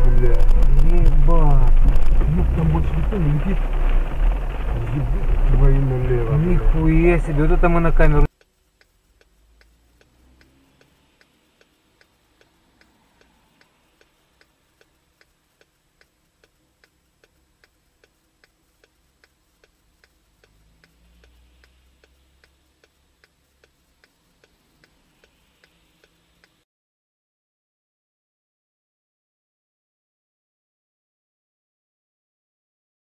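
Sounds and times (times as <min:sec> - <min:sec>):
weak low rumble: 0:00.0 - 0:08.3
faint even ticking: 0:00.0 - 0:26.6.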